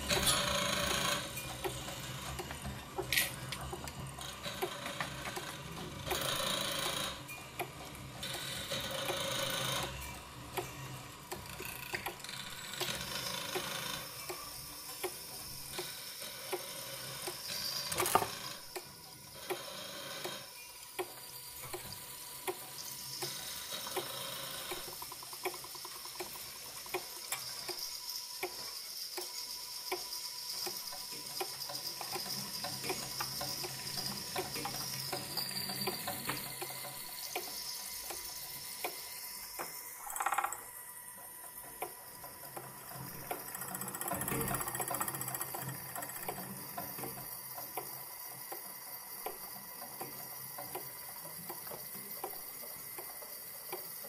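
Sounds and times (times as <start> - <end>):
mechanical ticking: 0.0 - 19.6, 20.2 - 29.3, 41.5 - 54.0
thin steady high tone: 27.3 - 40.2.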